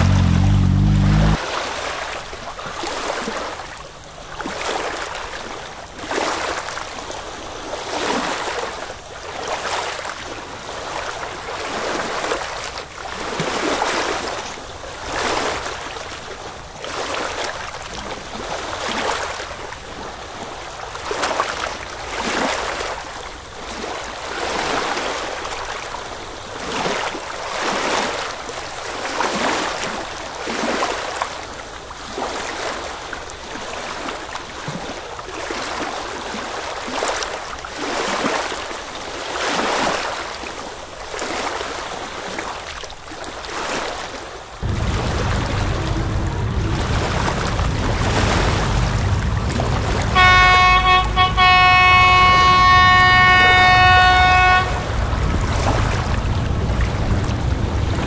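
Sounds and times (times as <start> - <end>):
sea waves washing on shore: 0.0 - 58.0.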